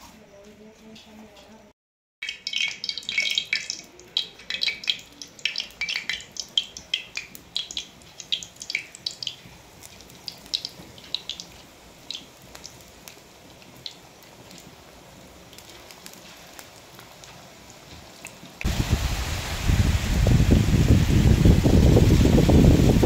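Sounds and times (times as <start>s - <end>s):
sharp popping in hot oil: 2.2s - 14.8s, 15.4s - 18.8s
oil sizzling: 2.2s - 23.0s.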